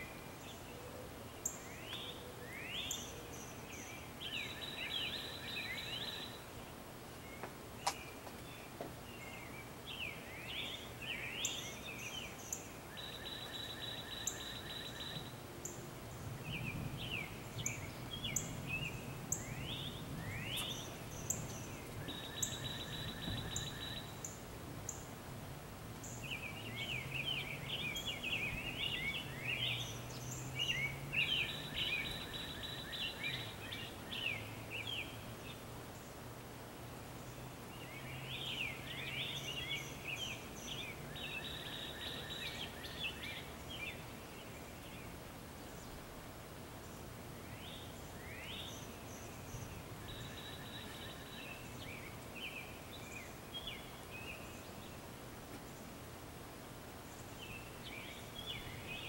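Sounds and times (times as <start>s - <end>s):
songbird trill: 0.0s - 25.2s, 26.0s - 36.3s, 37.2s - 56.0s, 57.0s - 59.0s
quick bird chirping calls: 16.2s - 25.1s.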